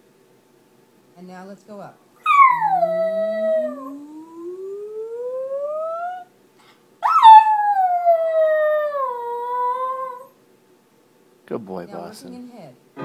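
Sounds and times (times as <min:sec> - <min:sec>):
small dog howling: 0:02.2 - 0:06.3, 0:07.0 - 0:10.4.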